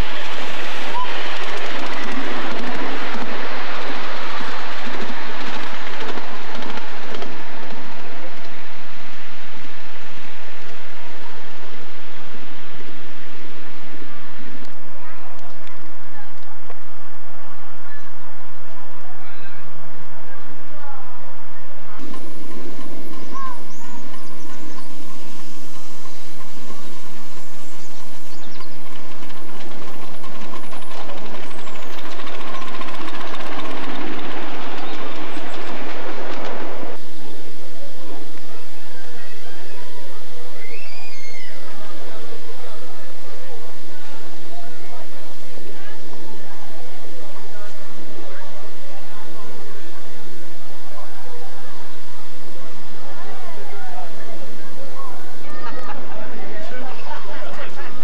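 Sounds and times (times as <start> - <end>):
miniature steam locomotive running: 0.0 - 12.6, 20.4 - 58.0
wheels clicking over rail joints: 1.2 - 8.6, 22.0 - 37.0.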